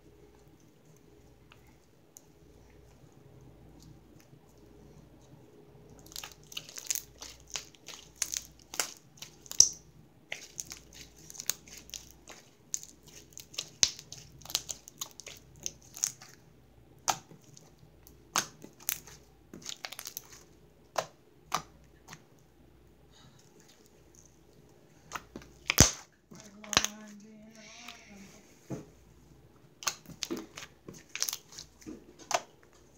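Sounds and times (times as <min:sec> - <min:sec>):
slime sticky clicks and pops: 0:06.1 - 0:09.8, 0:25.1 - 0:27.0, 0:29.8 - 0:31.4.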